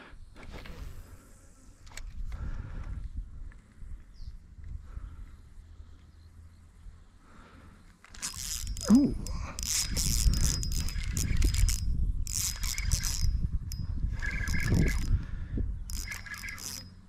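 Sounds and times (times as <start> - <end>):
rod handling rumble: 8.0 - 16.9
spinning reel gears whirring: 8.0 - 17.0.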